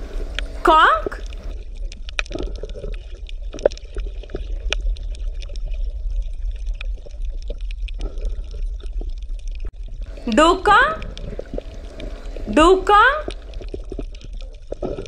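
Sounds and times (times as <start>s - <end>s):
low underwater rumble: 0.0s - 15.0s
water bubbling and gurgling: 0.0s - 15.0s.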